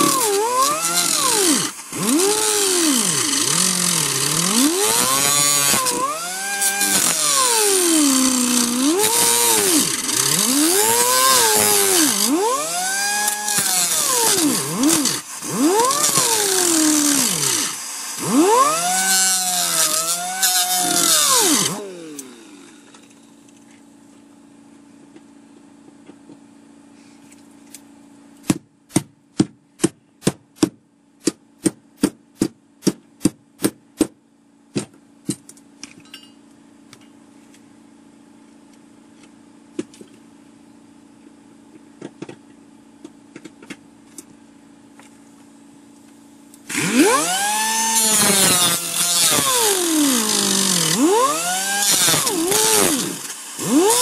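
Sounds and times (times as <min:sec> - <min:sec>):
hand grinder cutting sheet steel: 0:00.0 - 0:23.0, 0:46.7 - 0:54.0.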